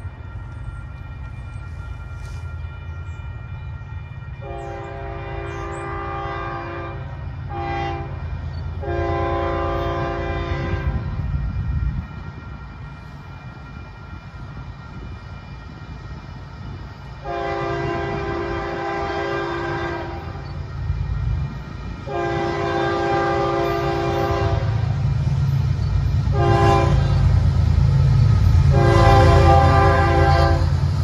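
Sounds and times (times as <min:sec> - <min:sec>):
low train rumble: 0:00.0 - 0:31.0
train air horn blasts: 0:01.7 - 0:12.8, 0:17.2 - 0:25.4, 0:26.2 - 0:31.0.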